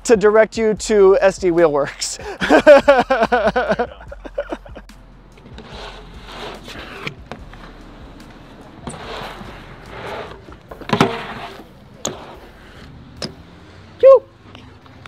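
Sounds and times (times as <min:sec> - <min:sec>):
bike tyres hissing on concrete: 0:05.5 - 0:13.4
bike knocks and clacks: 0:06.5 - 0:13.4.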